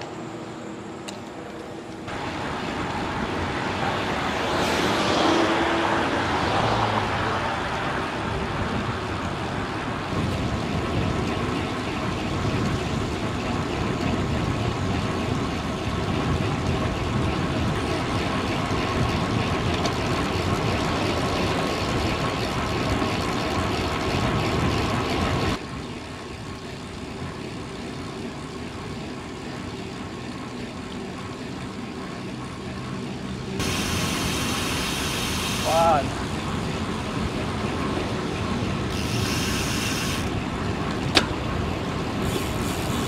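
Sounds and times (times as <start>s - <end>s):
bicycle road noise: 0.0s - 43.0s
wind rushing over microphone: 2.1s - 25.6s.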